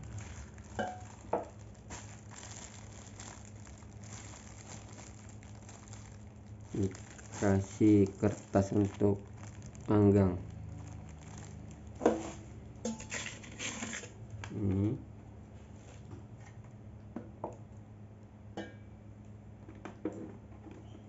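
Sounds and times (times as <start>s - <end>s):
plastic wrap crinkling: 0.0s - 14.2s.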